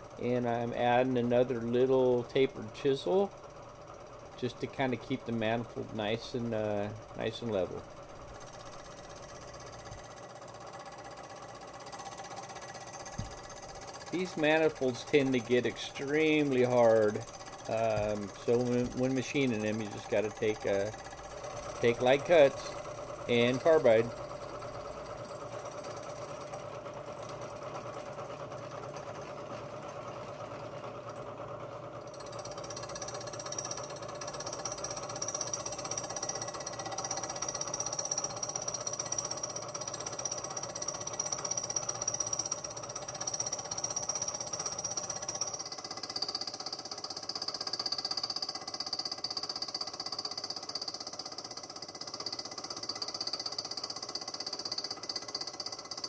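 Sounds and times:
high machine whine: 0:04.0 - 0:45.5
repetitive hammering of cutter: 0:11.8 - 0:24.2
milling machine cutting metal: 0:11.8 - 0:29.2.

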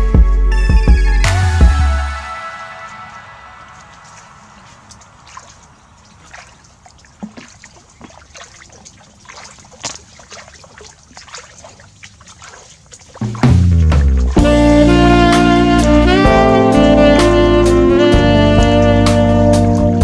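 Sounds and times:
bare feet splashing through water: 0:01.8 - 0:16.0.

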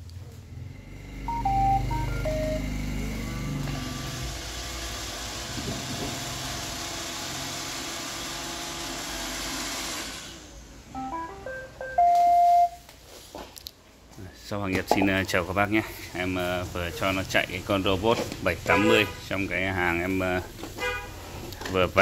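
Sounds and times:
robot vacuum beeping tune: 0:01.2 - 0:03.1, 0:11.0 - 0:12.8
vacuum motor and brushes running: 0:02.3 - 0:10.5.

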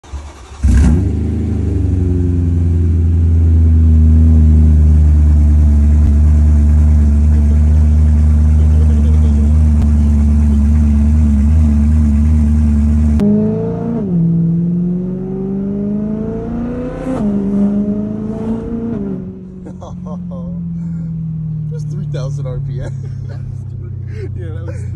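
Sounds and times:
car engine starting and idling: 0:00.0 - 0:24.9
engine revving as car pulls away: 0:00.1 - 0:05.3, 0:06.0 - 0:19.6.

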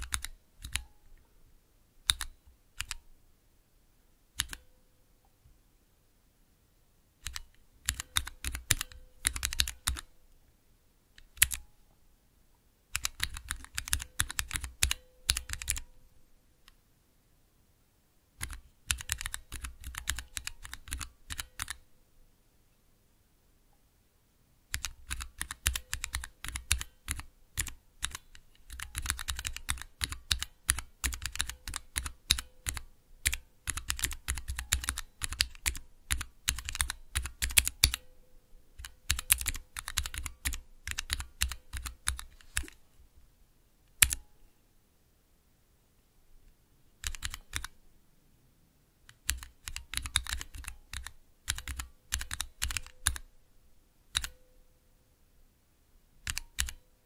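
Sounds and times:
mechanical keyboard typing: 0:00.0 - 0:00.9, 0:02.1 - 0:03.0, 0:04.4 - 0:04.6, 0:07.2 - 0:10.1, 0:11.2 - 0:11.6, 0:12.9 - 0:15.9, 0:18.4 - 0:21.8, 0:24.7 - 0:38.0, 0:38.8 - 0:42.8, 0:44.0 - 0:44.2, 0:47.0 - 0:47.8, 0:49.1 - 0:53.3, 0:54.1 - 0:54.4, 0:56.2 - 0:56.8.

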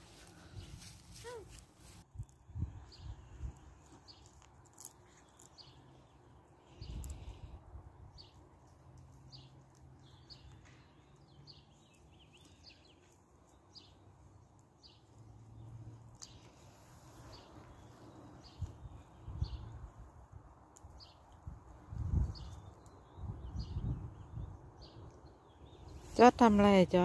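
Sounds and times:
bird chirping: 0:09.2 - 0:14.0.

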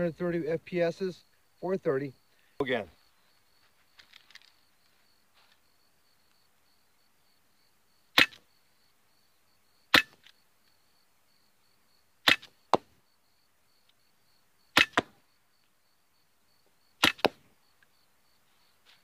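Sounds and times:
air pistol shots: 0:08.2 - 0:08.4, 0:09.9 - 0:10.3, 0:12.2 - 0:12.8, 0:14.7 - 0:15.2, 0:17.0 - 0:17.4.

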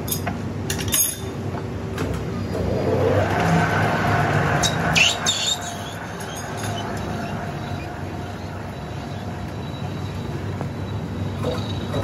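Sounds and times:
short squeal: 0:04.5 - 0:10.4.

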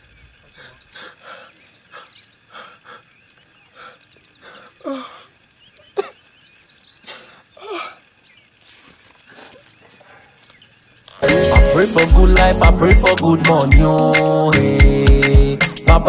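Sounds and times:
breathy sobs and gasps: 0:03.8 - 0:05.3, 0:07.0 - 0:08.0.

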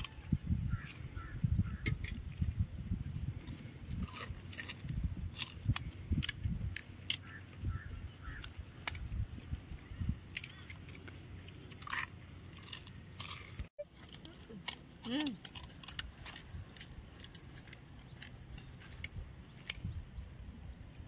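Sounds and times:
small birds chirping: 0:00.0 - 0:21.0
crisp shells crunching while eaten: 0:11.7 - 0:18.4.

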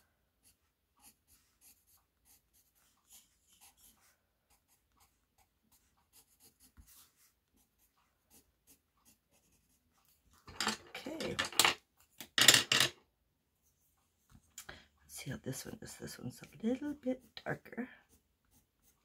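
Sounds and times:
pencil scratching on paper: 0:00.4 - 0:11.3, 0:15.5 - 0:19.0.

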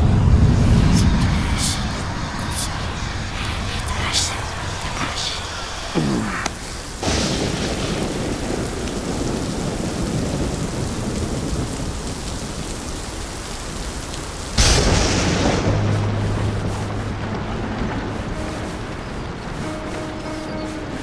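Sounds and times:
steady rain: 0:00.0 - 0:21.0
loud thunder clap: 0:07.0 - 0:12.5, 0:14.6 - 0:18.2.

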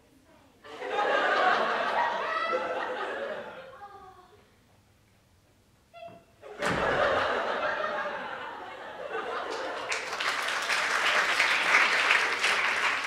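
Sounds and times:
audience laughing: 0:00.7 - 0:03.8, 0:06.4 - 0:10.6
thump: 0:06.1 - 0:07.2.

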